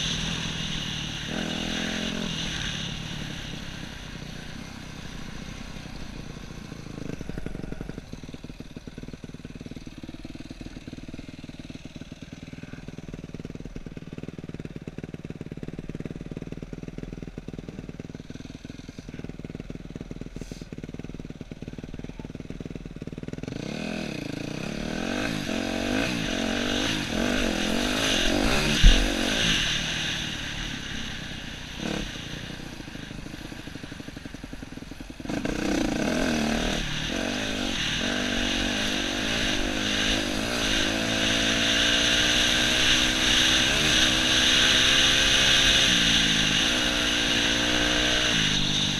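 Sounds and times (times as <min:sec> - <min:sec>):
dirt bike engine revving: 0:00.0 - 0:13.4, 0:23.2 - 0:48.9.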